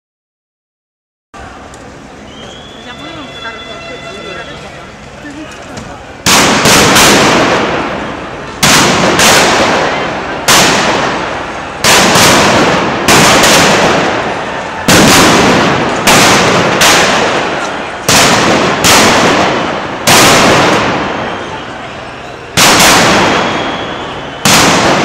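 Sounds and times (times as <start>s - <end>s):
loud sharp bangs with echo: 6.2s - 21.9s, 22.5s - 25.0s.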